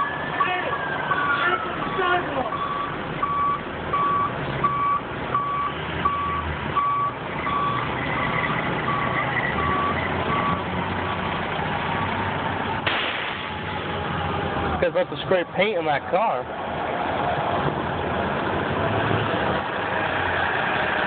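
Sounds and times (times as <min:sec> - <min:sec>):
reverse alarm beeping: 0:00.0 - 0:07.8
street noise: 0:00.0 - 0:21.0
truck engine: 0:00.0 - 0:21.0.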